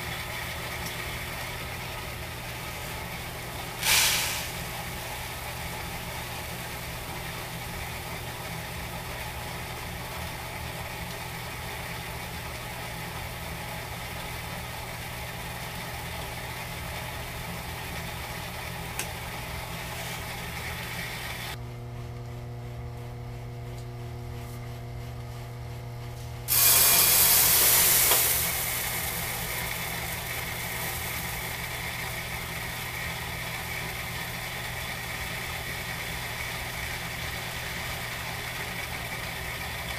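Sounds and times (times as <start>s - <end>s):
grain mill motor hum: 0.0s - 39.9s
rush of grain: 3.8s - 4.8s, 26.5s - 32.1s
grain grinding and rattling: 26.5s - 31.7s.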